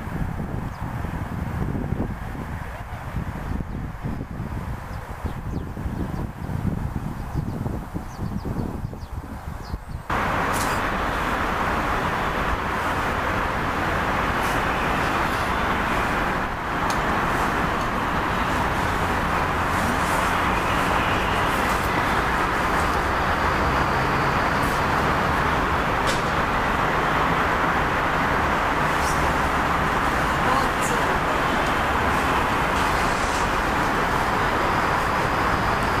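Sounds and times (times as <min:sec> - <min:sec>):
station rumble and hiss: 0:10.1 - 0:36.0.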